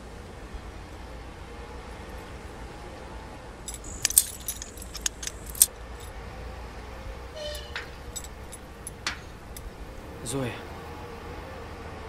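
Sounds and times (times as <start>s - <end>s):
metal climbing gear clinking: 3.7s - 6.1s, 7.3s - 10.0s.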